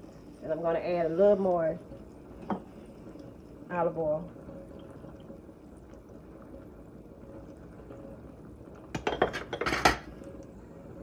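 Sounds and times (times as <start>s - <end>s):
glass and utensils clinking: 9.0s - 10.1s.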